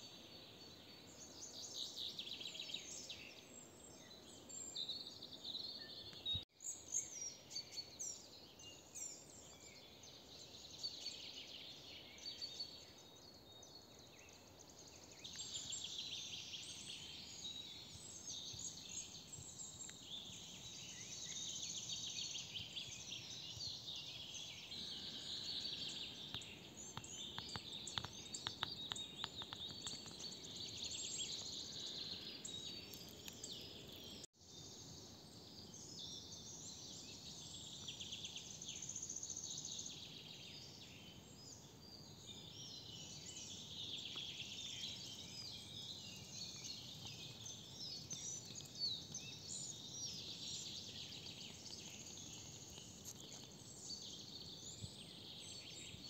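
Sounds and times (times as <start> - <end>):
birds chirping and singing: 14.8 - 34.3, 35.7 - 56.0.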